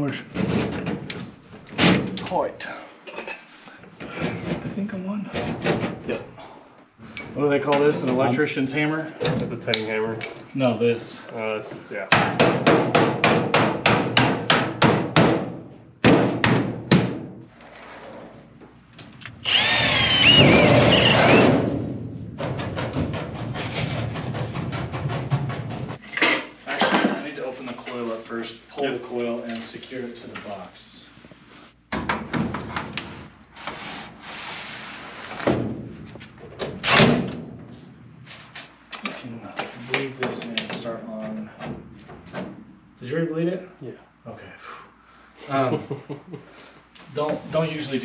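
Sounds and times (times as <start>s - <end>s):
loud metal knock: 12.1s - 17.3s
power drill on sheet metal: 19.4s - 21.8s.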